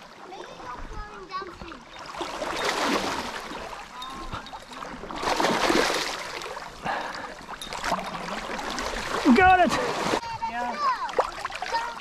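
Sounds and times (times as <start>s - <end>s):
flowing water: 0.0s - 12.0s
fish splashing at the surface: 2.0s - 10.2s.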